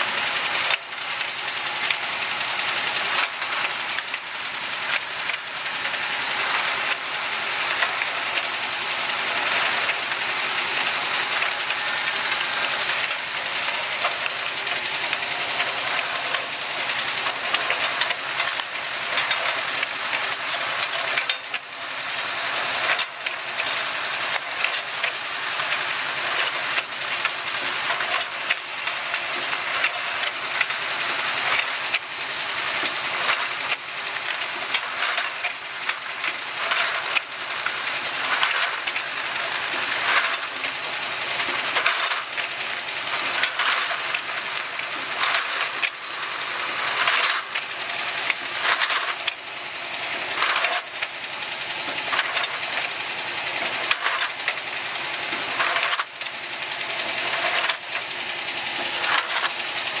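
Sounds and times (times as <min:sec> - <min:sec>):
machine mechanism rattling: 0:00.0 - 1:00.0
glass vials clattering: 0:17.2 - 0:26.8, 0:32.8 - 0:37.6, 0:41.5 - 0:46.0.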